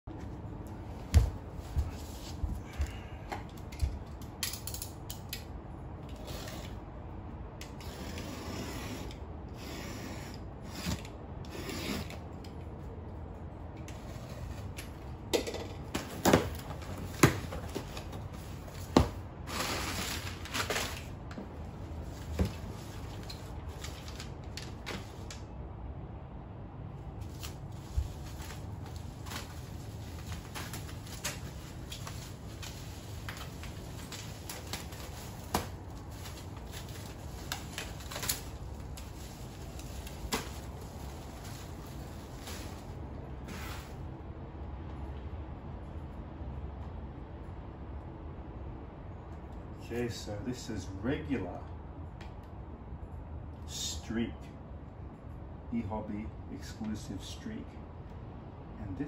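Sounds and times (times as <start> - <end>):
packing paper rustling: 15.9 - 25.4, 27.2 - 44.0.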